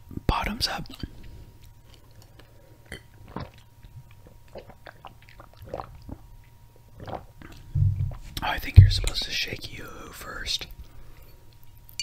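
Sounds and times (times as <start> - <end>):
person gulping a drink: 2.1 - 9.2.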